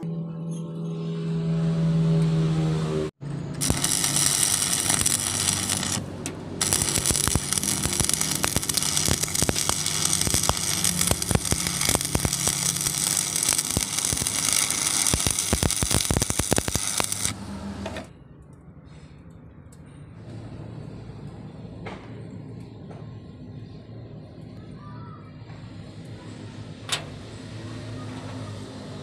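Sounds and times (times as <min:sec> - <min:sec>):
welding arc crackling: 0:03.6 - 0:17.5.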